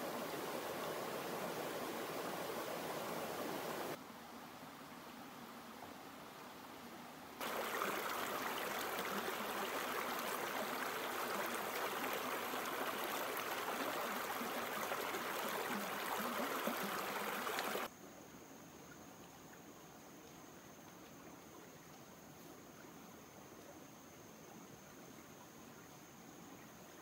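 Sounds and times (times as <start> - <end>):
stream running over rocks: 0.0 - 4.0, 7.4 - 17.9
faint high-pitched whine: 0.0 - 27.0.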